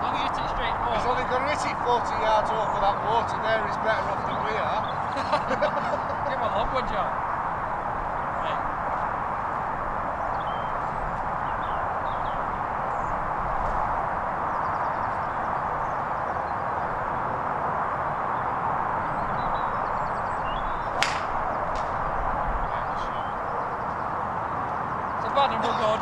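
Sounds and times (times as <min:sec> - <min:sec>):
faint bird chirps: 0:10.2 - 0:13.3, 0:18.1 - 0:21.7, 0:22.6 - 0:26.0
golf club striking ball: 0:20.9 - 0:22.0.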